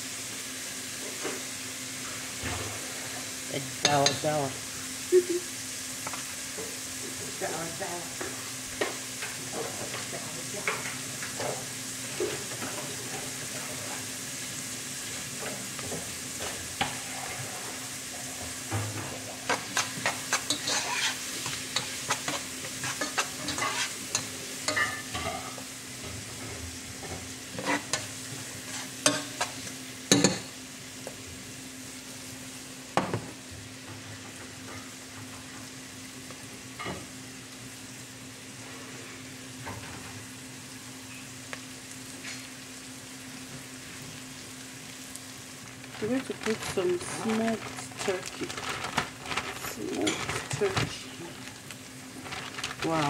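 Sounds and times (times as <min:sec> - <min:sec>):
onions sizzling in hot oil: 0:00.0 - 0:53.0
clicks and scrapes stirring pot: 0:19.5 - 0:25.4.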